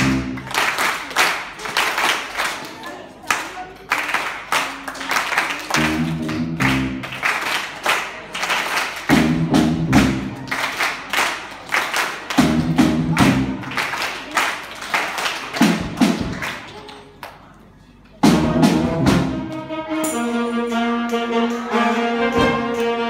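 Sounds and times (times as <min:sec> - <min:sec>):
drum kit beat: 0:00.0 - 0:00.5, 0:05.8 - 0:07.2, 0:09.1 - 0:10.4, 0:12.4 - 0:13.8, 0:15.6 - 0:16.4, 0:18.2 - 0:19.5
horn section chords: 0:00.0 - 0:00.6, 0:05.7 - 0:07.4, 0:09.0 - 0:10.5, 0:12.4 - 0:13.8, 0:18.2 - 0:23.0.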